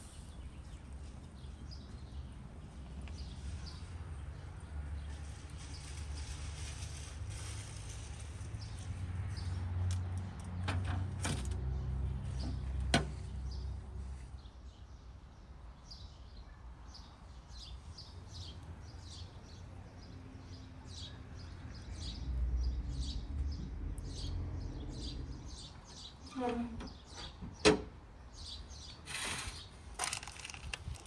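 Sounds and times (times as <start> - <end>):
small birds chirping: 11.7 - 27.6, 28.2 - 31.0.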